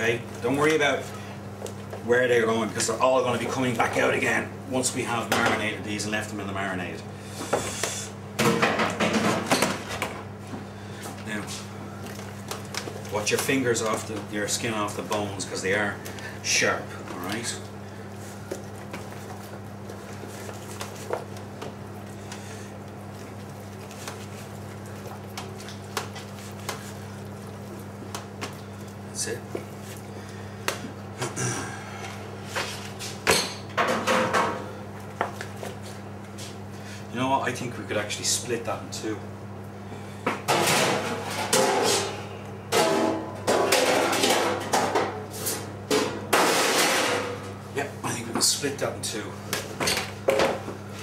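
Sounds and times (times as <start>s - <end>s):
steady low hum: 0.0s - 51.0s
metal trays clattering: 40.5s - 45.2s.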